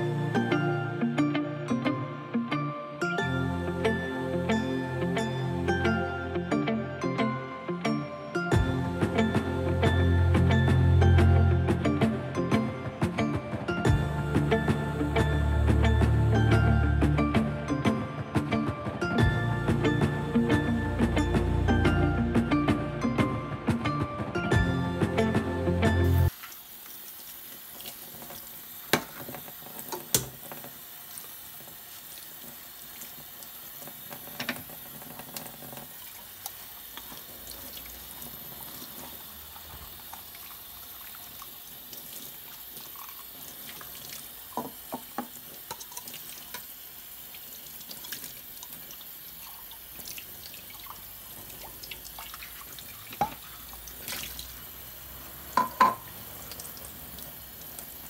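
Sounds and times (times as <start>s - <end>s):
tap water running into sink: 26.3s - 58.0s.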